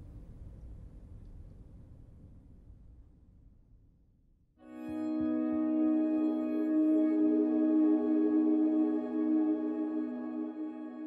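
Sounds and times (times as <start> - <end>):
ambient music of held tones: 4.6 - 11.0.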